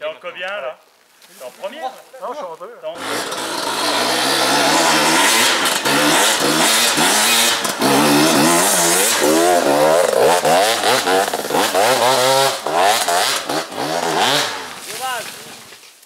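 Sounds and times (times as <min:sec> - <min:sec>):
dirt bike engines revving: 0:02.9 - 0:15.3.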